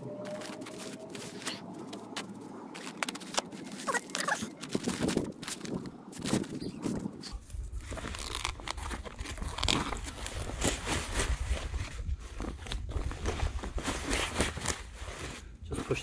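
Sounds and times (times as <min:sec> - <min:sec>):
steady low rumble: 0:00.0 - 0:10.6.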